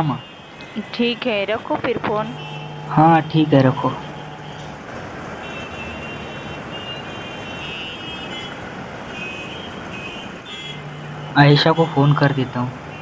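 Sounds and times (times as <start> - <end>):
distant traffic noise: 0.0 - 13.0
faint high-pitched tones: 0.1 - 4.8, 10.5 - 13.0.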